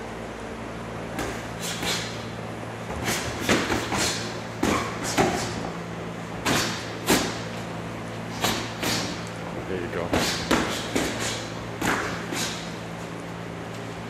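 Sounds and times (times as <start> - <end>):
boxing gloves smacking: 2.9 - 5.6, 6.4 - 7.4, 10.2 - 12.7.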